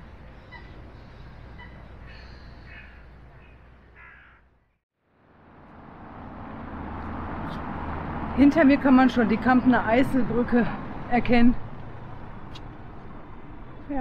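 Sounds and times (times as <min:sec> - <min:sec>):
low street hum: 0:00.0 - 0:14.0
birds calling: 0:00.2 - 0:04.5.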